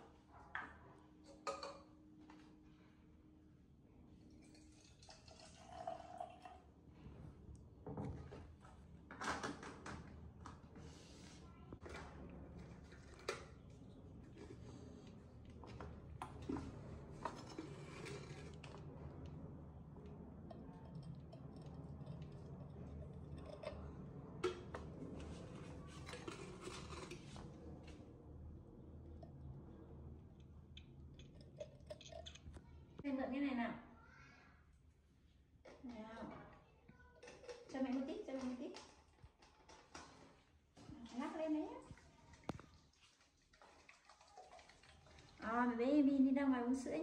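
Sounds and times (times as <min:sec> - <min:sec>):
water pouring into bottle: 0:04.6 - 0:06.7.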